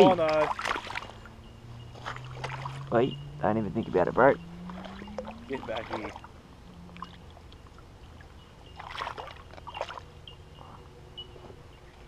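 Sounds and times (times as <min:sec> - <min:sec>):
fish splashing in shallow water: 0:00.0 - 0:03.0, 0:04.4 - 0:10.4.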